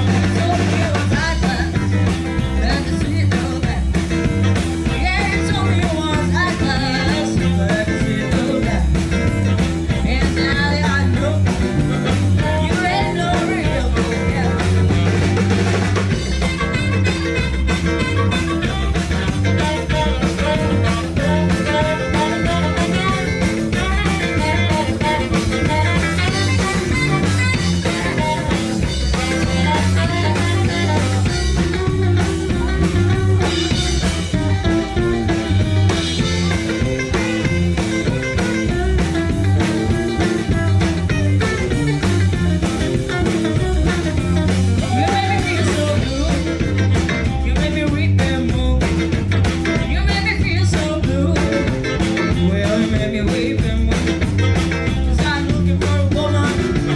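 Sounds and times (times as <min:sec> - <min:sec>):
bass: 0:00.0 - 0:56.9
drums: 0:00.0 - 0:56.9
electric guitars: 0:00.0 - 0:56.9
saxophone: 0:03.8 - 0:47.5, 0:56.2 - 0:56.9.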